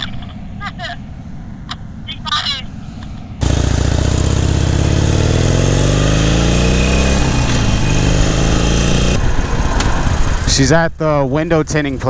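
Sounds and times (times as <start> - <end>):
motorcycle engine accelerating: 3.2 - 10.5.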